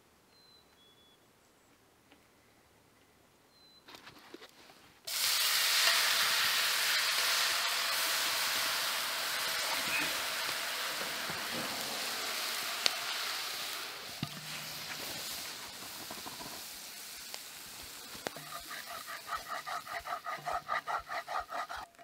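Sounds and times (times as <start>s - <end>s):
liquid sizzling in hot skillet: 5.1s - 21.9s.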